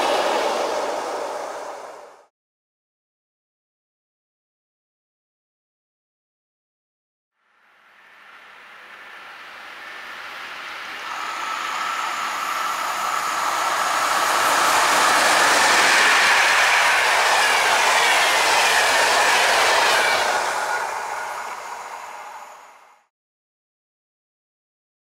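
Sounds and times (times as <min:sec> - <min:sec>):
train rushing past: 0:00.0 - 0:02.3, 0:07.8 - 0:23.1
high whine gliding down: 0:07.5 - 0:23.1.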